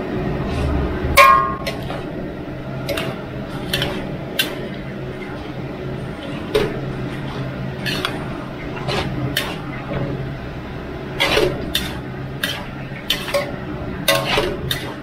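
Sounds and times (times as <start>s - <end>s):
steady low hum: 0.0s - 15.0s
metal ladle scraping wok: 2.8s - 4.8s, 6.2s - 9.8s, 11.2s - 15.0s.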